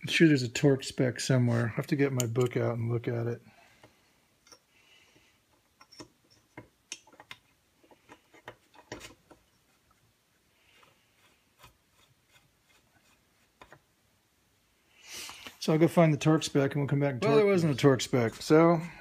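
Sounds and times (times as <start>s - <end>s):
soft rubbing: 7.8s - 13.9s.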